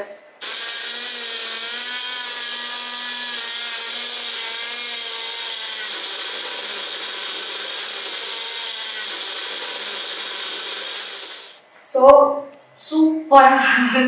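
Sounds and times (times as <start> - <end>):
blender motor whine: 0.4 - 11.6.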